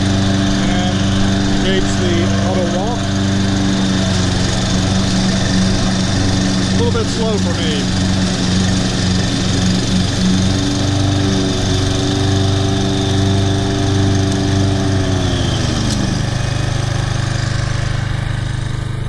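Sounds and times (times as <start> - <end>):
whine: 0.0 - 13.6
lawn mower engine running: 0.0 - 19.0.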